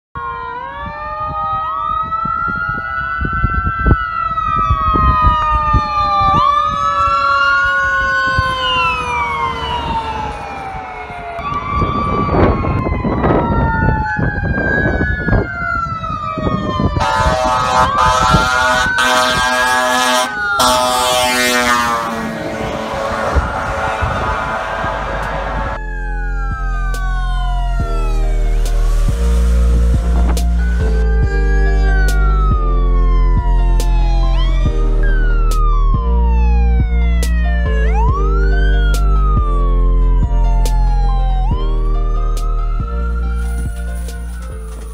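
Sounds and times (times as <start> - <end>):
emergency sirens wailing: 0.1 - 44.9
fire truck horn blasts: 17.0 - 25.8.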